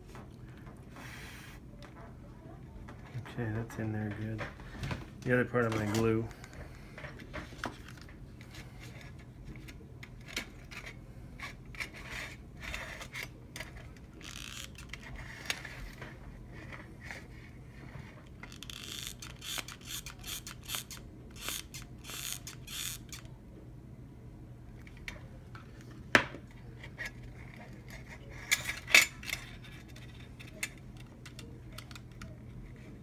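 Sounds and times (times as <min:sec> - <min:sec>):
low steady hum: 0:00.0 - 0:33.0
small clicks and scrapes: 0:05.6 - 0:23.3, 0:24.8 - 0:33.0.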